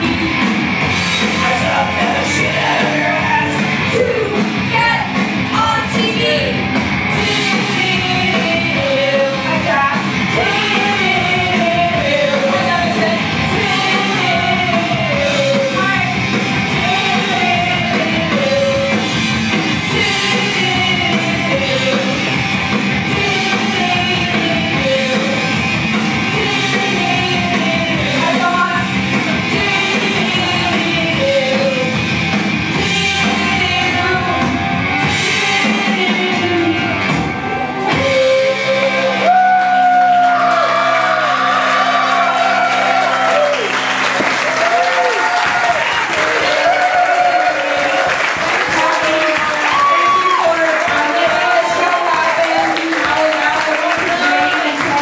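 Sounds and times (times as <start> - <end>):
rock music: 0.0 - 55.0
woman singing into a microphone: 26.3 - 32.0, 32.8 - 37.1, 37.8 - 39.7.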